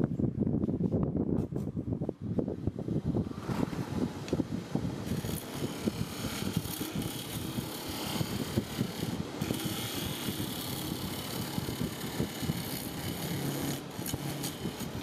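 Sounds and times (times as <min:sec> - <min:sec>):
wood lathe rumbling: 0:03.3 - 0:15.0
gouge cutting hiss: 0:05.0 - 0:15.0.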